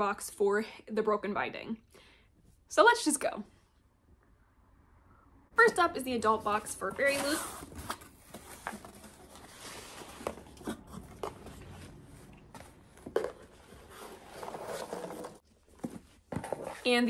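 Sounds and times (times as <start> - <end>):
cardboard and paper rustling: 6.4 - 17.0.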